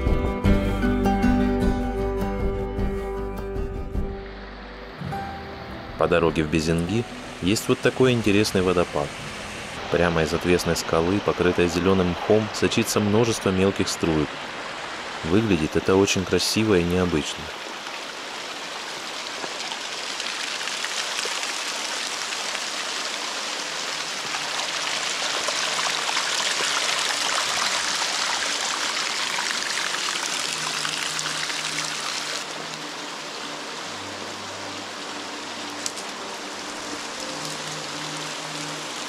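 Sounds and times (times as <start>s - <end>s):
water trickling down rock: 18.8s - 32.8s.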